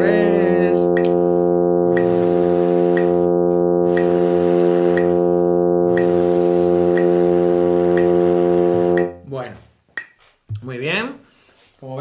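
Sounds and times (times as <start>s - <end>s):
electronic drone note: 0.0s - 9.3s
metronome clicks: 0.9s - 1.2s, 1.9s - 2.2s, 2.9s - 4.2s, 4.9s - 5.2s, 5.9s - 6.2s, 6.9s - 7.2s, 8.0s - 8.2s, 8.9s - 9.3s, 10.0s - 10.2s.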